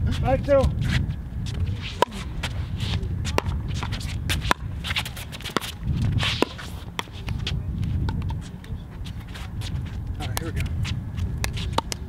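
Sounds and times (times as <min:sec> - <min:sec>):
feet shuffling on court: 0:00.0 - 0:12.0
paddles hitting plastic ball: 0:11.4 - 0:12.0.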